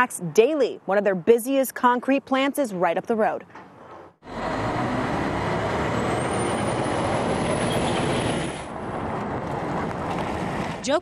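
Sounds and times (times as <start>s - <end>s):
truck engine and road rumble: 2.4s - 11.0s.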